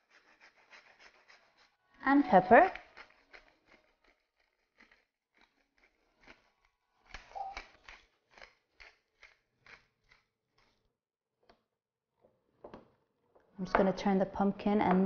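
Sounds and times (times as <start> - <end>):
pepper mill grinding: 2.2 - 10.3.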